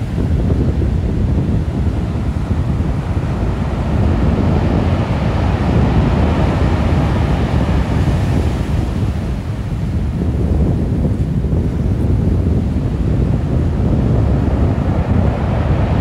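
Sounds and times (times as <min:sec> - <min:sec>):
sea waves washing on beach: 0:00.0 - 0:16.0
wind rumbling on microphone: 0:00.0 - 0:16.0.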